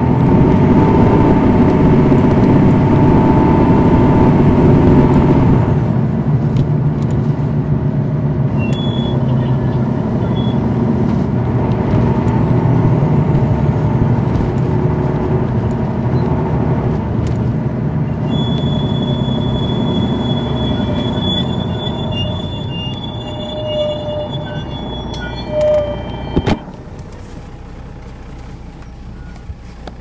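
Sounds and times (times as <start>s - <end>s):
bus engine droning: 0.0s - 30.0s.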